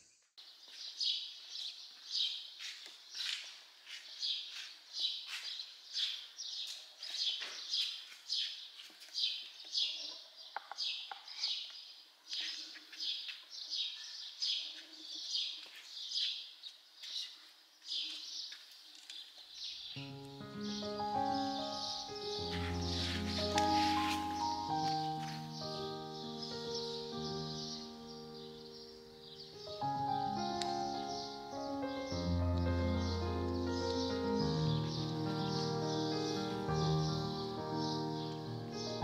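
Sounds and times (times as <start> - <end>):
small bird chirping: 0.4 - 39.0
background music: 20.0 - 39.0.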